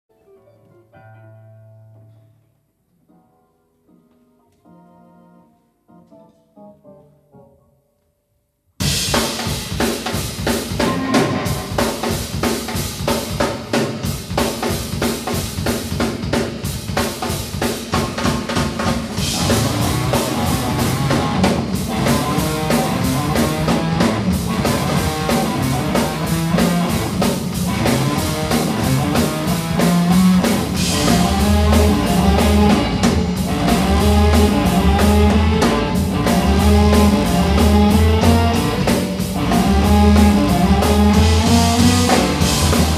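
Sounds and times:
busy drum kit: 8.8 - 42.9
live band playing: 8.8 - 42.9
heavy pulsing bass line: 19.2 - 42.9.

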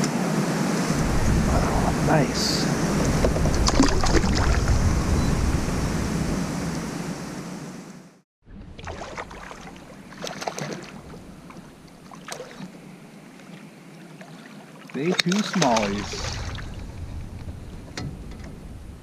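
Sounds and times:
water lapping around kayak: 0.0 - 7.9, 8.5 - 19.0
wind rumbling on microphone: 0.0 - 10.1, 15.8 - 19.0.

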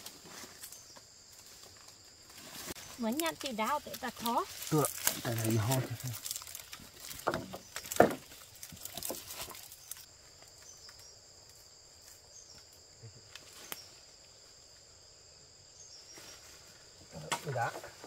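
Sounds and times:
insects chirring: 0.0 - 18.0.

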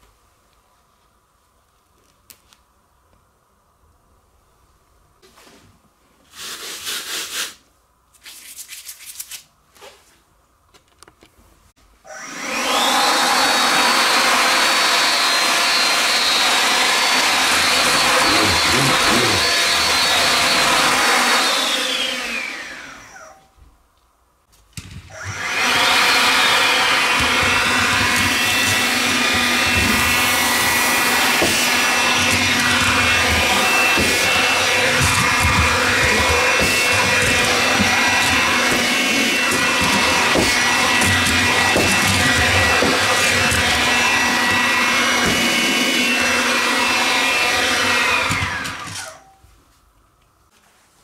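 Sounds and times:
cordless vacuum cleaner whining: 12.0 - 23.6, 25.0 - 49.4.

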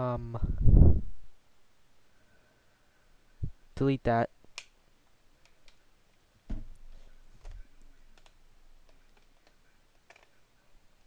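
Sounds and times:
soft thump: 6.5 - 7.6.

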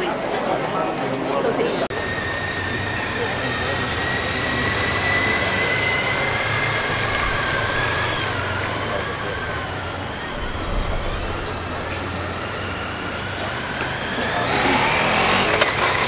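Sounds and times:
crowd noise: 0.0 - 16.0
low engine rumble: 1.8 - 16.0.

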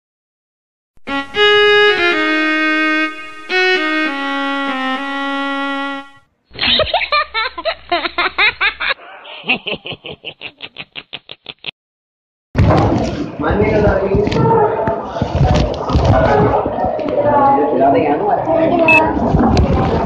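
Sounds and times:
slow violin melody: 1.0 - 6.2
voice: 9.0 - 11.7, 13.4 - 20.0.

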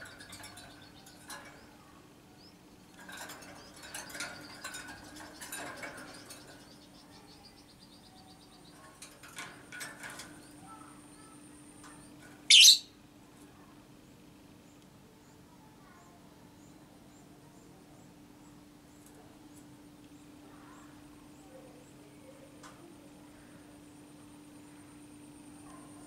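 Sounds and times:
lovebird shrill screech: 12.5 - 12.8
lovebird chirps: 12.5 - 12.9.

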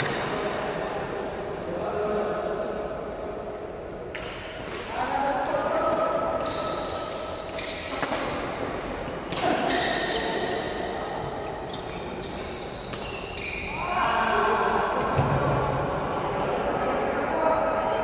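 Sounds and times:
racket hitting shuttlecock: 5.5 - 10.4
shoe squeaks on court floor: 6.4 - 8.0, 9.6 - 10.5, 11.6 - 13.8
players' voices: 7.7 - 18.0.

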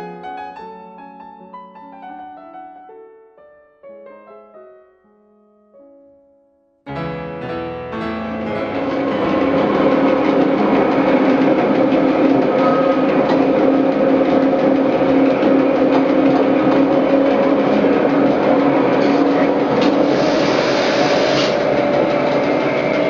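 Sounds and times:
piano music: 0.0 - 23.0
electric railcar rumble and hum: 8.2 - 23.0.

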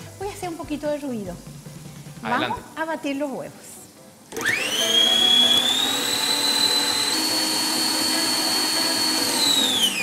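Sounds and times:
stand mixer motor whining: 4.3 - 10.0.

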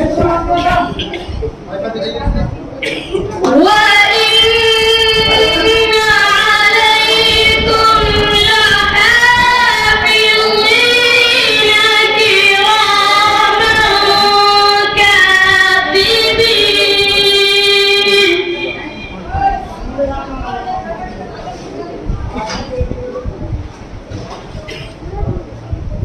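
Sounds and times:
boy chanting melodically: 3.4 - 19.6.

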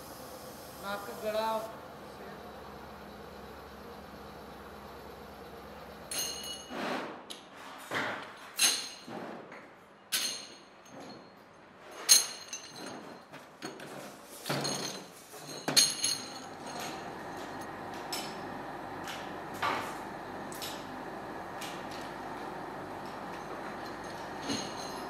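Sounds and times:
metal castings clinking: 6.1 - 6.7, 14.6 - 17.1.

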